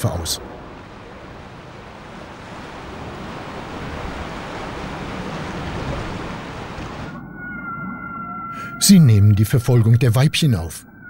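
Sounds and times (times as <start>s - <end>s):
sea waves: 0.0s - 11.0s
faint steady high tone: 7.2s - 11.0s.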